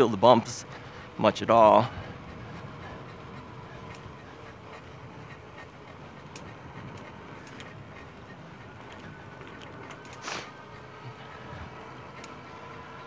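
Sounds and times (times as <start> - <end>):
rush of tyres and wind: 0.0 - 13.0
light clicks: 3.8 - 4.1, 8.8 - 10.3, 11.9 - 12.5.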